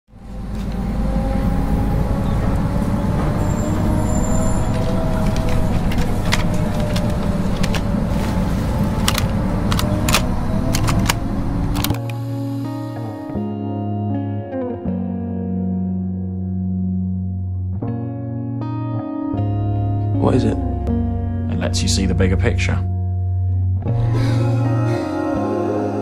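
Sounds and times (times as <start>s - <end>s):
bus engine rumbling: 0.1s - 13.4s
music with held notes: 0.3s - 26.0s
sharp clicks and rattles: 4.7s - 8.0s, 8.8s - 12.2s.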